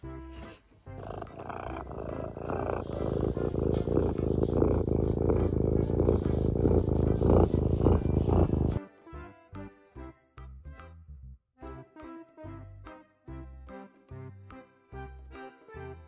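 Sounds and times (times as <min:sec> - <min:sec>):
cat purring loudly: 0:01.0 - 0:08.8.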